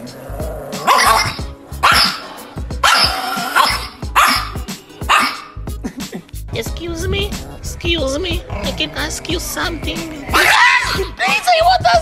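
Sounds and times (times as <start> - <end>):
small dog barking angrily: 0.7 - 5.6, 10.3 - 11.1.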